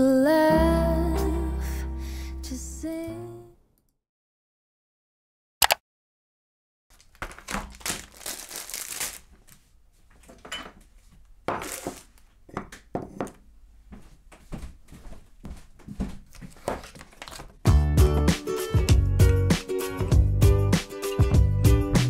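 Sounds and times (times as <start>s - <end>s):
plastic packaging crinkling: 6.9s - 9.7s, 11.6s - 12.2s, 16.3s - 17.6s.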